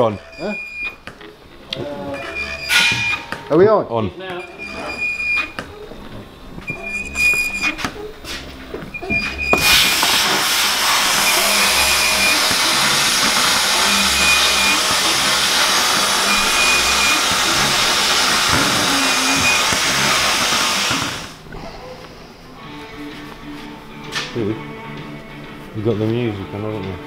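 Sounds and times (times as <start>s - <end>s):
hiss of blasting cabinet: 9.6s - 21.4s.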